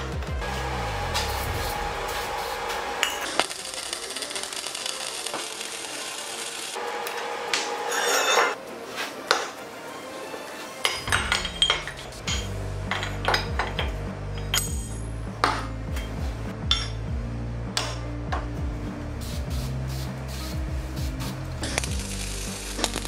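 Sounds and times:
background music: 0.0 - 23.0
welding tack: 1.2 - 6.8, 21.2 - 23.0
metal clinks and knocks: 10.9 - 17.1
aerosol spray hissing: 19.2 - 23.0.

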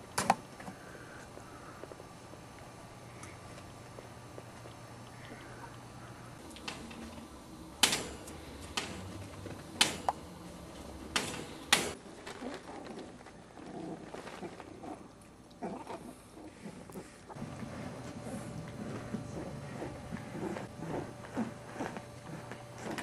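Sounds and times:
sharp knocks and clicks: 7.8 - 12.0
puppies playing with toys: 7.9 - 23.0.

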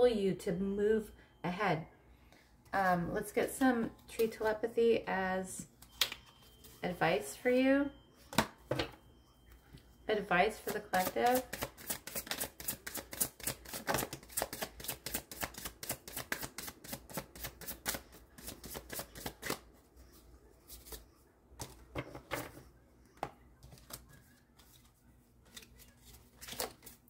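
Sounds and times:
cards being shuffled by hand: 11.0 - 20.1, 23.6 - 27.0.

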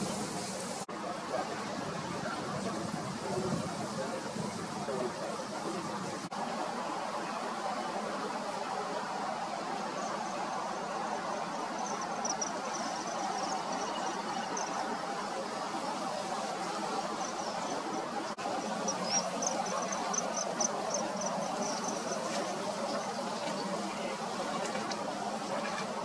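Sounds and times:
rapid high-pitched chirping: 11.8 - 14.8, 18.8 - 22.3.

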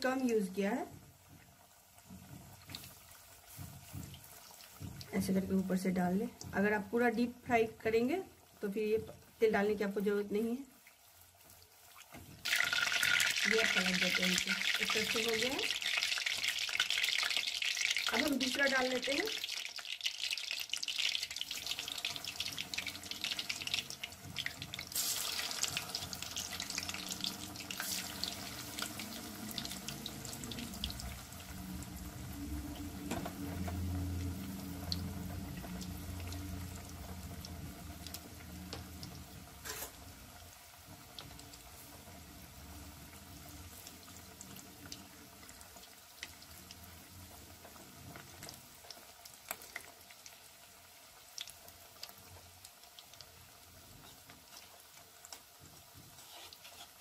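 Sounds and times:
hot oil sizzling and bubbling: 0.0 - 57.0.

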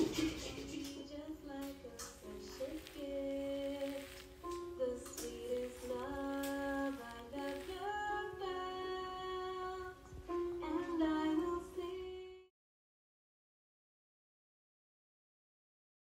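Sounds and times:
high singing voice: 0.0 - 12.5.

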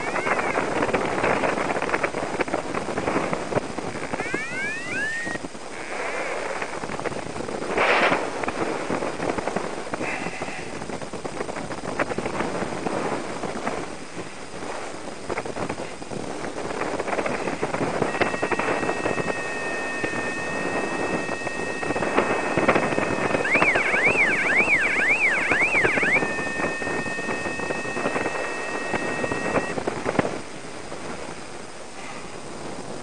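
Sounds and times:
electronic two-note tone: 0.0 - 0.7, 4.2 - 5.4, 18.0 - 29.8
wind rushing over microphone: 0.0 - 33.0.

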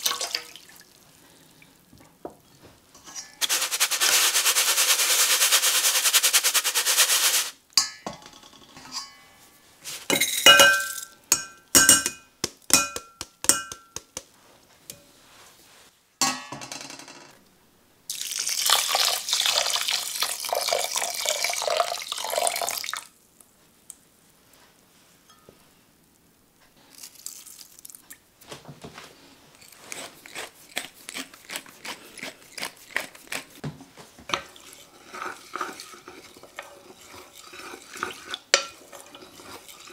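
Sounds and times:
rice rattling in a mesh sieve: 3.4 - 7.6
sieve clinking against metal bowl: 10.1 - 14.0, 37.6 - 39.3
water pouring onto rice: 18.1 - 23.1.

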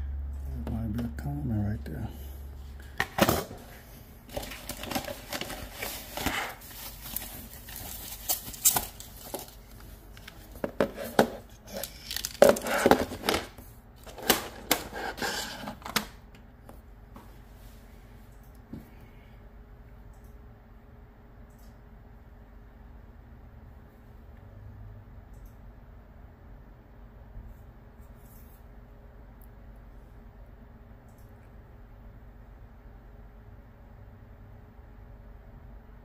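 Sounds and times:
hands rustling and clicking on parts: 4.3 - 16.4.

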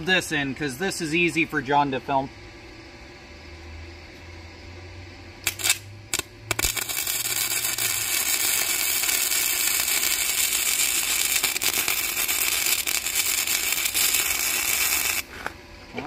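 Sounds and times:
welding arc crackling: 5.4 - 15.4.

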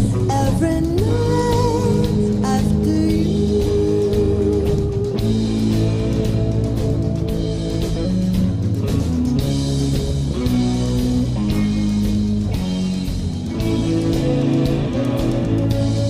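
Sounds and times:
live rock band playing slow song: 0.0 - 16.0.

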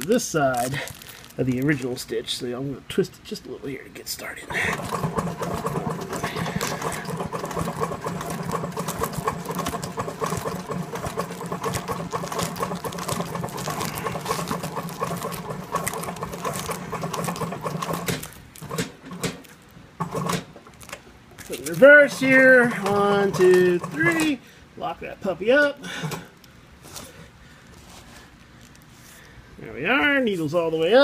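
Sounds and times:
industrial sewing machine stitching: 4.5 - 19.4, 20.0 - 20.5, 21.8 - 24.4.

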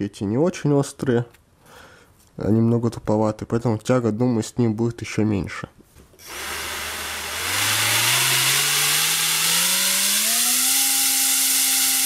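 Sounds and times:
drone motor whine: 6.2 - 12.0.

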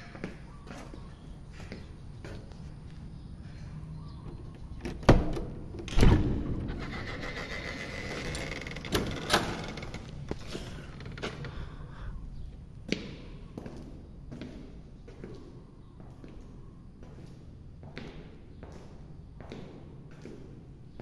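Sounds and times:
faint footsteps: 0.0 - 4.8, 9.9 - 21.0
door creaking and scraping: 4.3 - 11.8
door latch clunks: 4.8 - 6.7.

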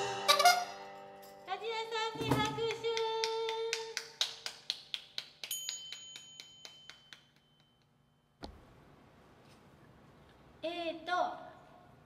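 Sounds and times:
small high bell ringing: 5.4 - 8.3.

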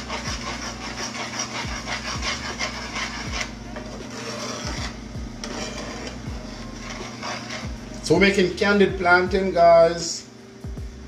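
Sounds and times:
utensil scraping a frying pan: 0.0 - 8.6.

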